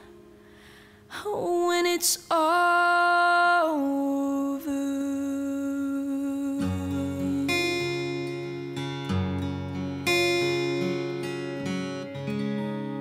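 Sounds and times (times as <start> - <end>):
acoustic guitar: 0.0 - 13.0
woman singing: 1.1 - 8.5.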